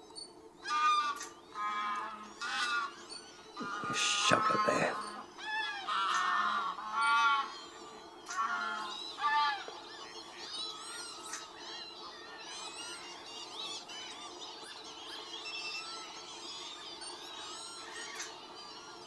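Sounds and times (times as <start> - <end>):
geese honking: 0.6 - 3.0, 3.6 - 9.8.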